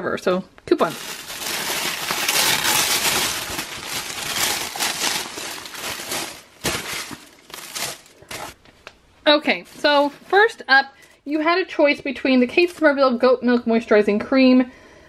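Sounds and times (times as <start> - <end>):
tissue paper rustling: 0.8 - 8.6, 9.5 - 10.5.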